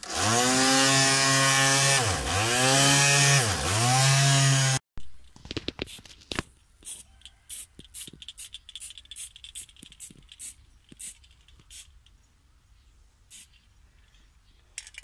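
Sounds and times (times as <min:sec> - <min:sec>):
spray can hissing bursts: 0:06.8 - 0:12.0, 0:13.3 - 0:13.5.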